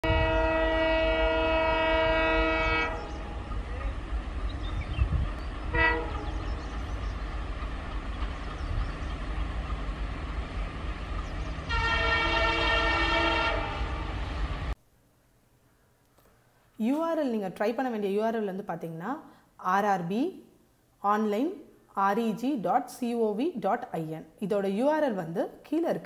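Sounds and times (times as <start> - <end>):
locomotive air horn: 0.0 - 3.5, 5.7 - 6.5, 11.7 - 14.1
moving train rumbling: 0.0 - 14.8.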